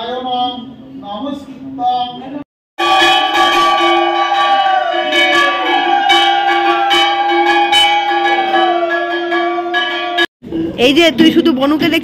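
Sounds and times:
bell ringing: 0:02.8 - 0:10.3.

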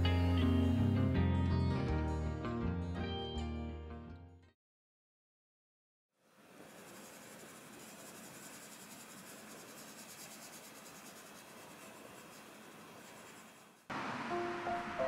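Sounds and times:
pencil scratching on paper: 0:06.5 - 0:13.9.

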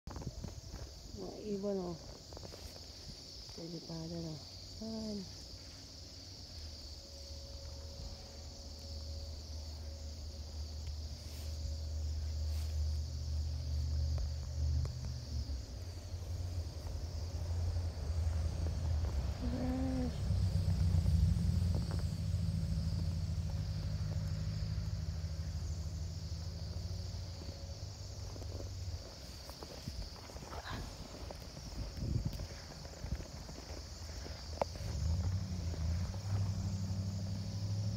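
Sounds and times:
low rumble: 0:04.4 - 0:30.2, 0:30.8 - 0:37.6.

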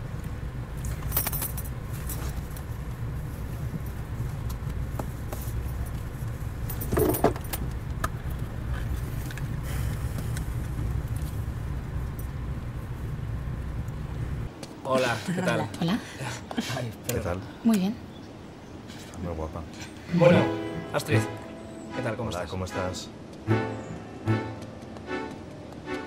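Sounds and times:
light clicks and jingling: 0:00.8 - 0:02.6.

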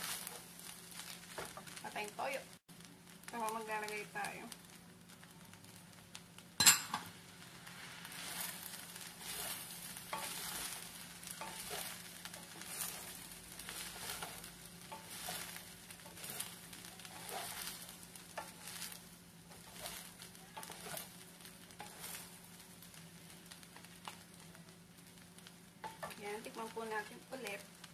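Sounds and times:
light sizzling: 0:00.0 - 0:27.9
spatulas scraping metal pan: 0:08.1 - 0:22.4.

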